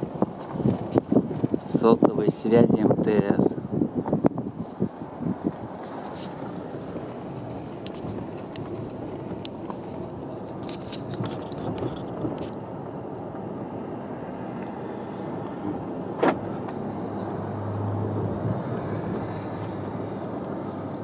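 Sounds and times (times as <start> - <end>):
tyres and engine hum: 3.5 - 21.0.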